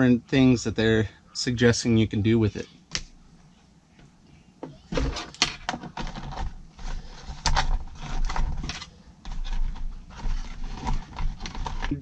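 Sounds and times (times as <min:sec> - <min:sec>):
cardboard box and cable handled: 0:04.9 - 0:12.0.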